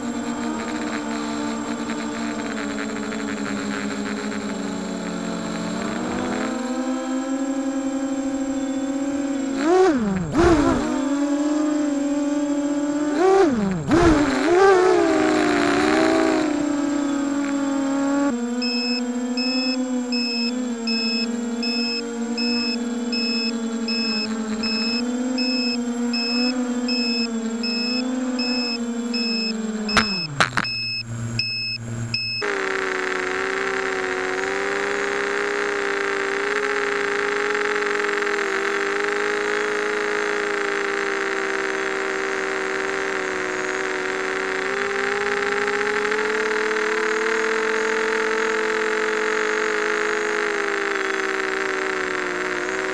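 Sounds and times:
drone motors whining: 0.0s - 52.9s
faint high beep: 18.6s - 32.5s.

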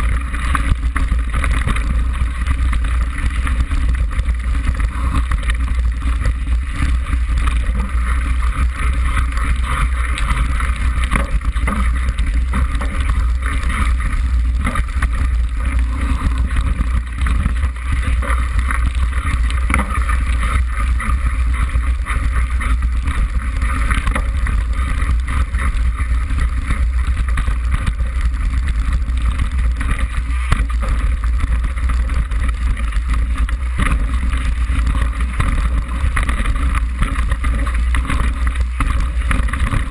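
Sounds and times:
bike rattling over bumps: 0.0s - 39.9s.

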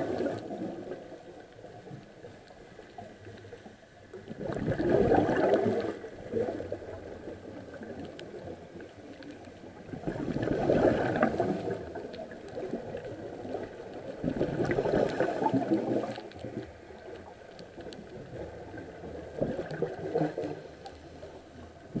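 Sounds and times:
underwater exhaled bubbles gurgling: 0.0s - 22.0s.

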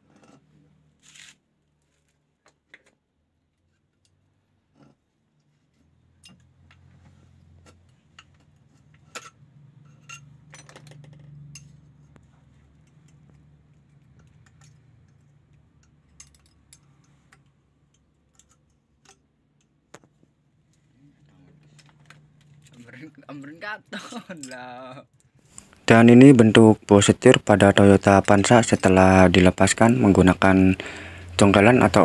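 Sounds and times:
metallic tool clicks and clinks: 14.0s - 19.7s.

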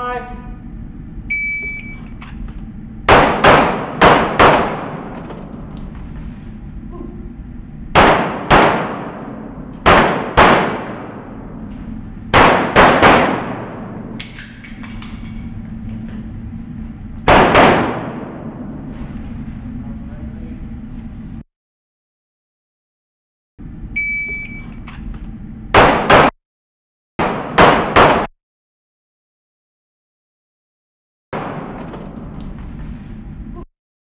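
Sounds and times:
pistol shots echoing indoors: 3.1s - 5.7s, 7.9s - 11.6s, 12.2s - 15.2s, 17.2s - 18.7s, 25.7s - 26.4s, 27.2s - 28.3s, 31.4s - 32.4s.

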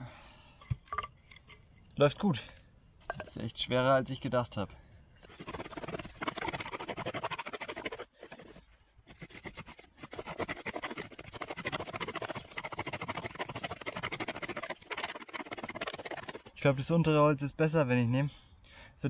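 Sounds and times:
bow drill rasping: 5.2s - 16.5s.

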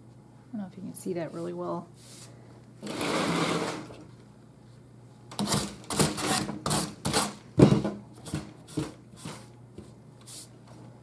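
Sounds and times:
wood and wire scraping table: 2.8s - 4.0s.

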